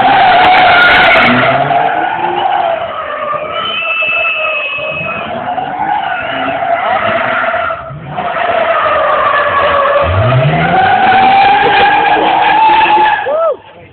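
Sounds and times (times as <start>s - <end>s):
car engine revving: 0.0s - 4.1s, 4.7s - 13.2s
tyres squealing: 0.0s - 13.4s.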